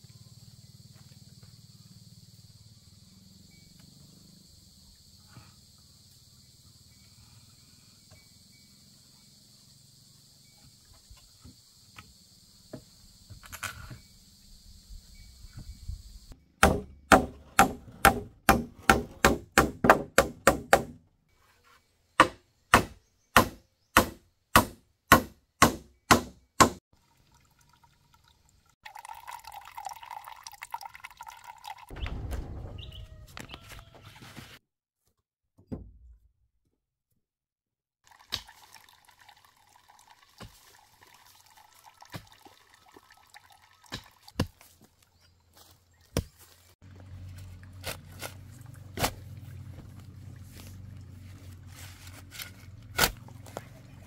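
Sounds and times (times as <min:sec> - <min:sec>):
sharp knocks on hard surface: 0:16.6 - 0:21.0, 0:22.2 - 0:26.8.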